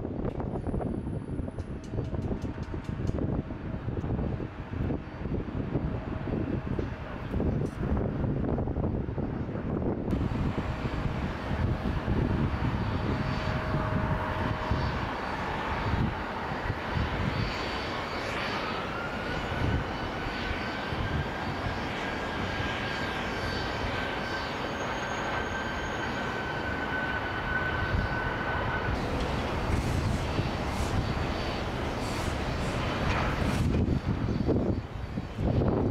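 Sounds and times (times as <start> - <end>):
jet engine whine: 0.0 - 35.9
jet engines roaring: 0.0 - 35.9.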